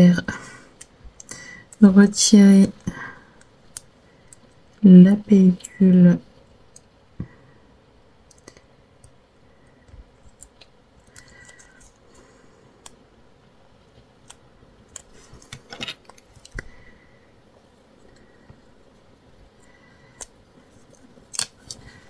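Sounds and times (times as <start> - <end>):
fingernails picking plastic film: 20.1 - 22.0.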